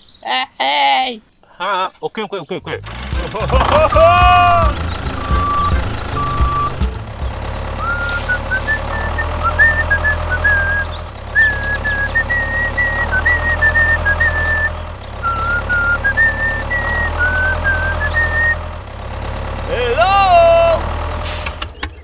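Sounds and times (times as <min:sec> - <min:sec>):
tractor engine droning: 0:02.7 - 0:22.0
simple high-pitched tune: 0:03.1 - 0:08.6.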